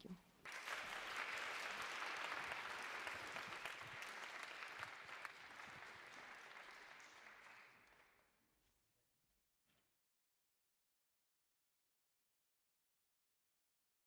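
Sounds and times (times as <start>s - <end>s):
audience applauding: 0.4s - 8.3s.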